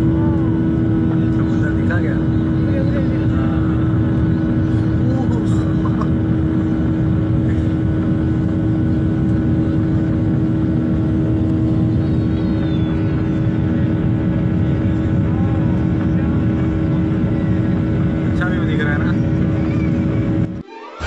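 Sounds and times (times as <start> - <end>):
jet airliner cabin drone: 0.0 - 21.0.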